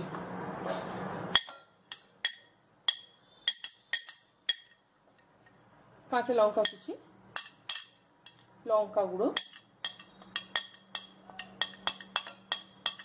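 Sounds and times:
spoon clinking on glass: 1.4 - 4.8, 6.6 - 8.4, 9.4 - 13.0.

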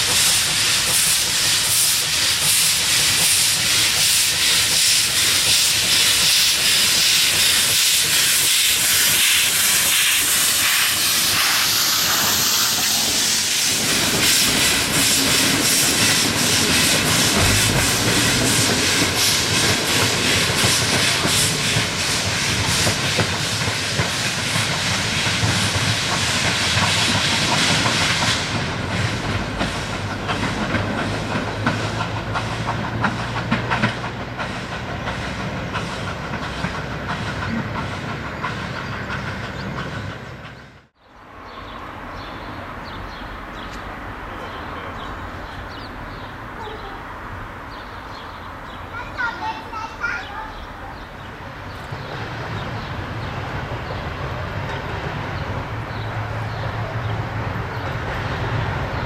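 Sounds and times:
steam hissing: 0.0 - 39.9.

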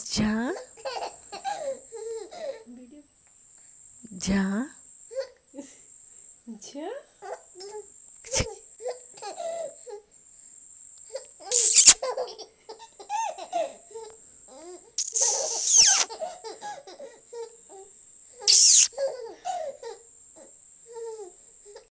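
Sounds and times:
baby giggling: 11.5 - 12.0, 15.0 - 16.1, 18.5 - 18.9
high-pitched baby laughter: 11.5 - 12.4, 15.0 - 16.2, 18.5 - 18.9.

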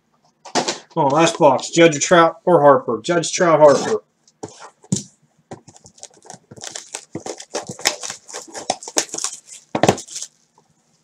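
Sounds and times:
plastic shrink-wrap tearing: 5.7 - 10.5.

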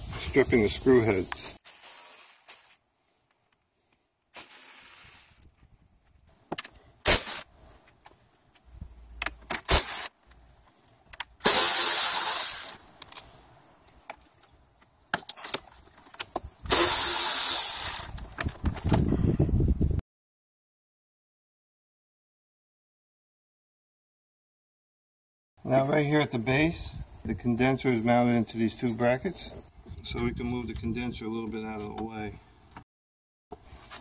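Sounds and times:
electric ratchet whirring: 11.4 - 12.8, 16.7 - 18.2.

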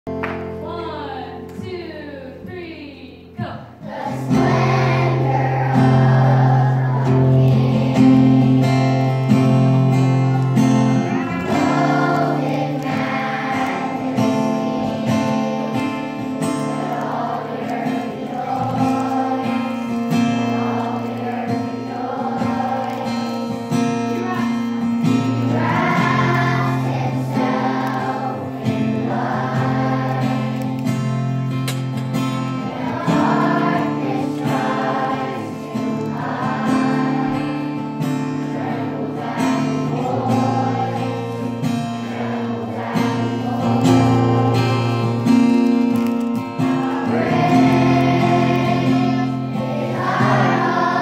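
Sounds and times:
backing music with held bass notes: 0.1 - 13.8, 23.8 - 28.3
children's choir singing: 3.3 - 51.0.

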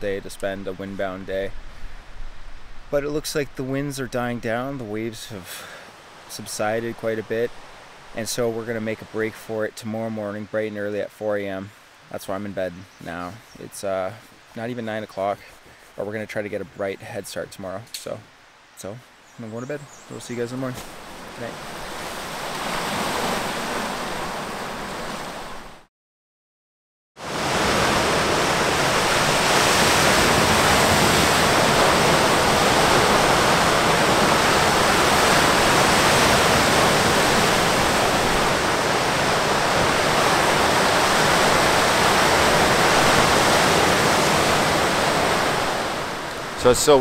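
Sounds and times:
small waves on cobble beach: 20.6 - 25.9, 27.2 - 47.0
large waves breaking on rocks: 27.2 - 47.0.

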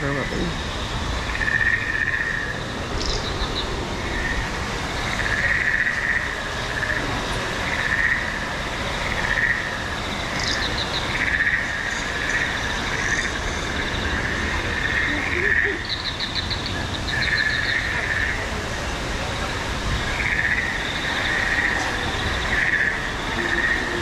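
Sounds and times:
steady high drone: 0.0 - 24.0
chirping calls: 1.3 - 4.4, 9.3 - 18.4.

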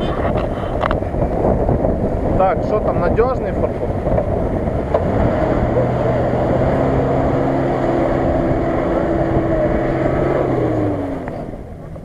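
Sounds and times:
car engine running under load: 3.6 - 12.0.

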